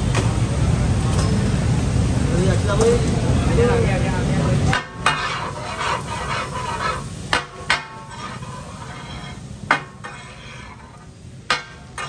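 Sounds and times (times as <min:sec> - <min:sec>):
frying sizzle: 0:00.0 - 0:12.0
metal spatulas clanking on iron griddle: 0:04.6 - 0:12.0.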